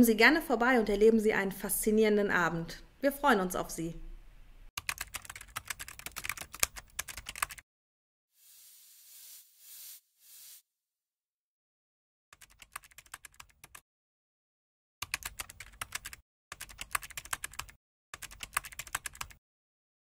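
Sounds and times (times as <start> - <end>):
computer keyboard typing clicks: 4.8 - 7.6, 15.0 - 19.4.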